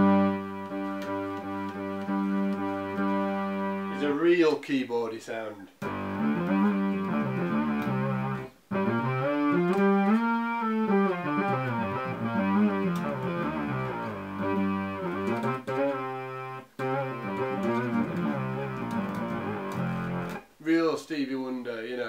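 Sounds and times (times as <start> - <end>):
electric bass with synth tone: 5.8 - 20.4.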